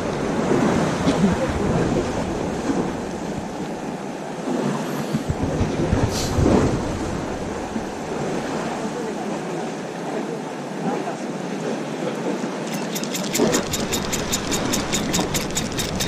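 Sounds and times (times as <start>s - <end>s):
wind buffeting microphone: 0.0s - 8.9s
sea water washing against concrete: 12.6s - 16.0s.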